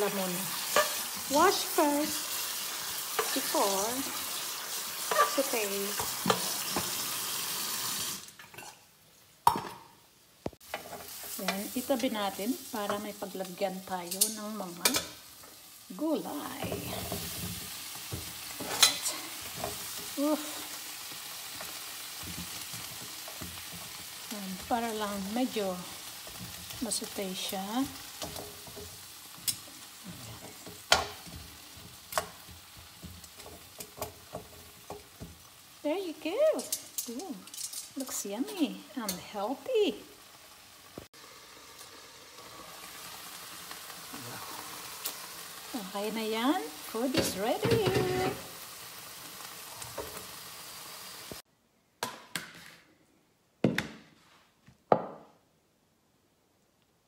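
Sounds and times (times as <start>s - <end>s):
faint sizzle of frying food: 0.0s - 51.5s
metal tongs clacking on pan: 14.0s - 15.2s, 18.6s - 19.8s, 28.0s - 29.7s, 36.6s - 38.1s.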